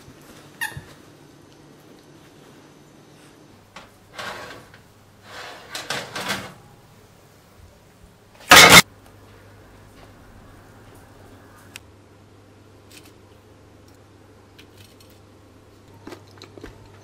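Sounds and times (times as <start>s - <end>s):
baking tray scraping over oven rack: 4.1s - 6.6s
loud clunk: 8.5s - 8.8s.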